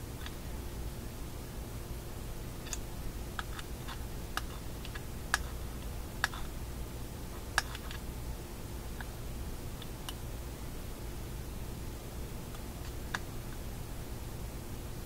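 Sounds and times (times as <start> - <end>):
fingers clicking small parts: 2.6 - 2.8, 6.2 - 6.5.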